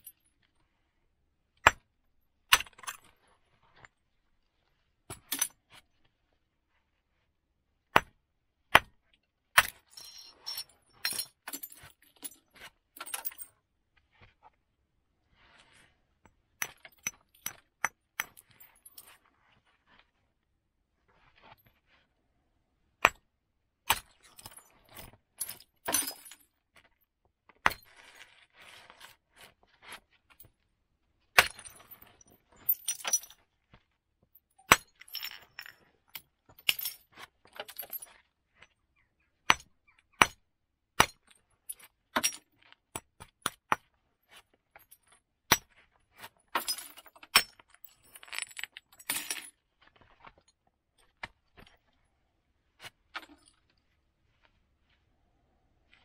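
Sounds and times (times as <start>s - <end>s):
stone striking flint: 1.6s - 1.9s, 7.9s - 9.0s, 23.0s - 23.3s, 34.6s - 35.3s, 39.5s - 40.4s, 41.0s - 41.3s, 45.5s - 45.8s
flint clinks and rustling: 9.9s - 11.2s.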